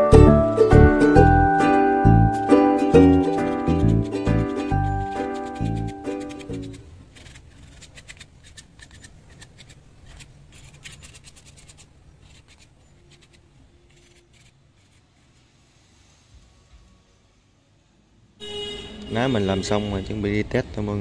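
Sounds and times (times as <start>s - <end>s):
music: 0.0s - 6.8s
small scratches and clicks: 3.3s - 15.1s.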